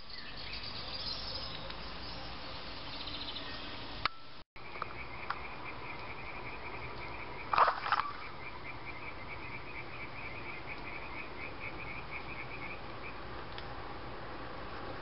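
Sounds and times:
frogs trilling: 0:04.6 - 0:13.2
loud short frog calls: 0:07.4 - 0:08.5.

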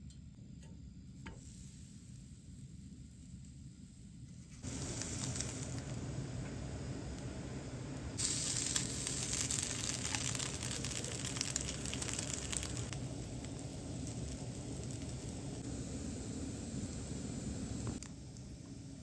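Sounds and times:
fine crackling spatter: 0:03.1 - 0:15.8
meat sizzling on grill plate: 0:04.6 - 0:17.9.

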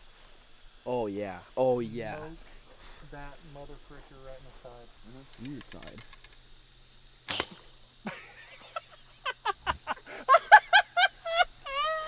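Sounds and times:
bowstring snap: 0:07.3 - 0:07.8
man laughing: 0:08.0 - 0:12.0.

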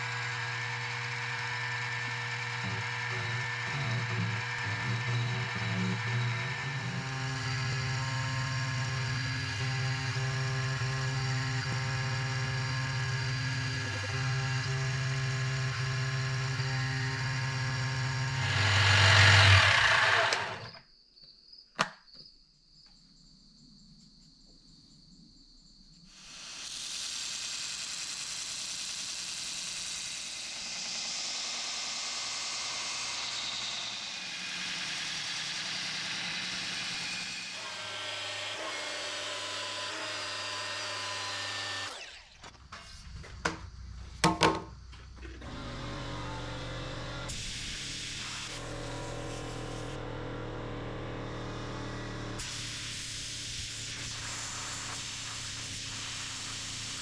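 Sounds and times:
belt grinder grinding: 0:00.0 - 0:20.8, 0:27.0 - 0:42.5, 0:45.4 - 0:52.8
mini mill cutting metal: 0:00.0 - 0:20.8, 0:26.2 - 0:42.5, 0:45.4 - 0:57.0.

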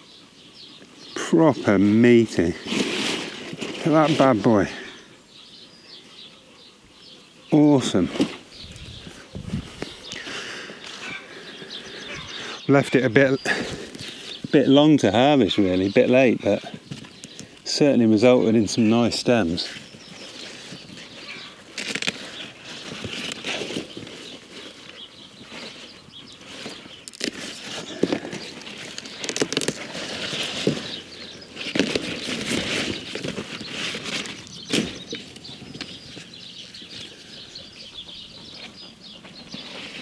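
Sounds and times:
leaves rustling and crackling: 0:01.0 - 0:05.1, 0:07.6 - 0:37.4
stalks snapping: 0:21.7 - 0:23.9, 0:26.6 - 0:30.9.

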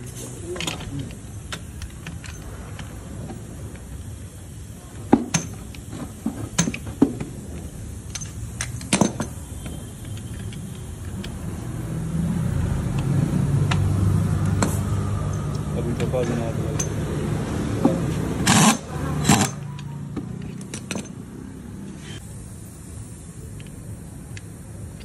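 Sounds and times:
metal tools clinking: 0:00.0 - 0:03.5, 0:08.0 - 0:09.4, 0:14.6 - 0:17.3, 0:18.4 - 0:22.2.

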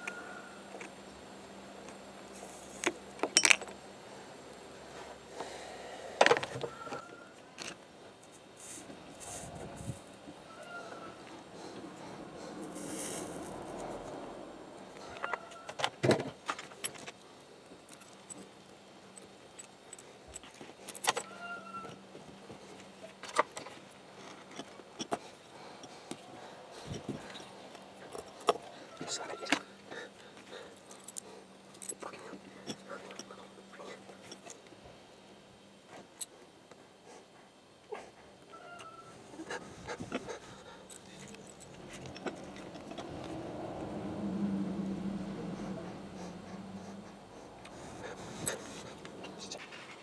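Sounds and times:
cable clicks and rustles: 0:14.8 - 0:29.7, 0:39.8 - 0:43.4.

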